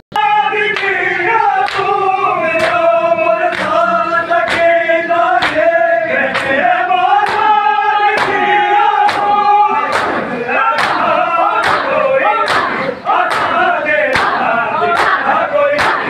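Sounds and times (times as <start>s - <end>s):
crowd chanting a lament: 0.1s - 16.0s
chest-beating slaps: 9.9s - 11.0s, 11.6s - 11.9s, 12.5s - 13.6s, 14.2s - 14.4s, 15.8s - 16.0s.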